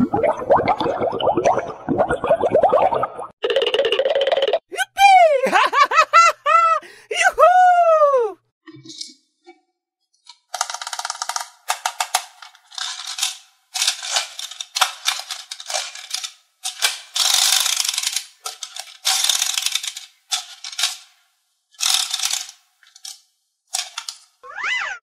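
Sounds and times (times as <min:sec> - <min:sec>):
plastic toy mechanism clicking: 0:10.3 - 0:21.2, 0:21.8 - 0:24.3.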